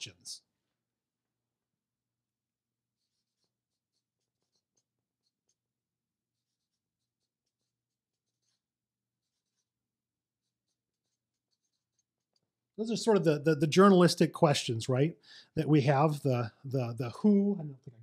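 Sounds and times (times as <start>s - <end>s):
marker squeaking on paper: 2.8s - 12.4s.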